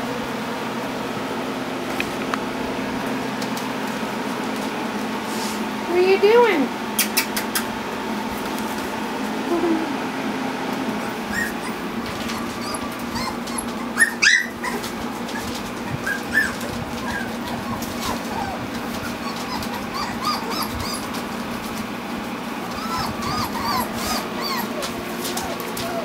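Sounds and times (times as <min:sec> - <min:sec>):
puppies whimpering and yipping: 0:10.8 - 0:26.0
puppy yelp: 0:11.0 - 0:21.4, 0:22.7 - 0:26.0.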